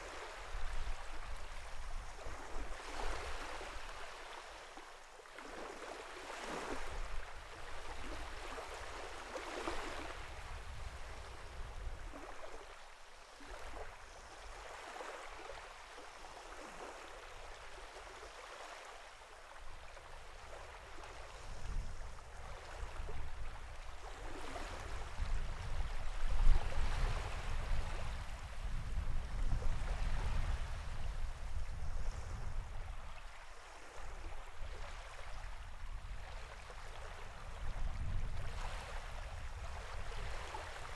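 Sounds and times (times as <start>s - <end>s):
sea water lapping: 0.0s - 10.4s.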